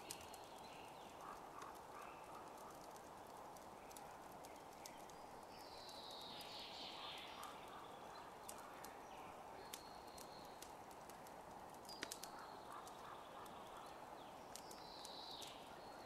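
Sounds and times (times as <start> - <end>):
sharp ticks: 0.0 - 6.6, 9.7 - 13.8
steady rushing hiss: 0.0 - 16.0.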